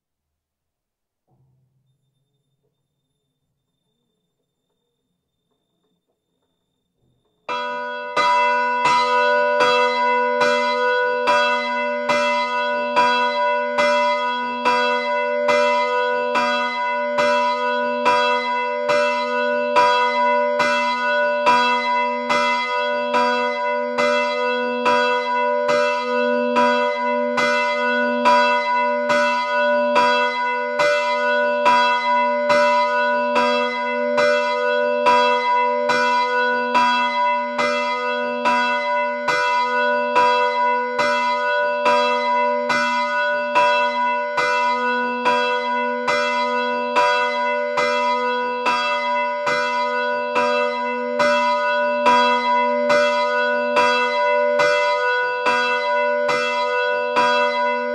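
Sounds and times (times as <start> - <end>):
church bells ringing: 7.4 - 57.9.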